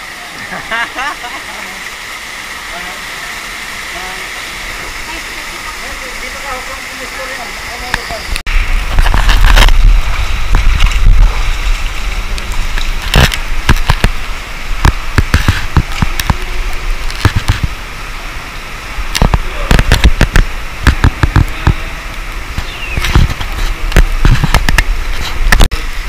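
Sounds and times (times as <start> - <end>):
low rumble: 8.4 - 15.2
knocks and scrapes on rock: 17.1 - 17.8, 22.6 - 25.6.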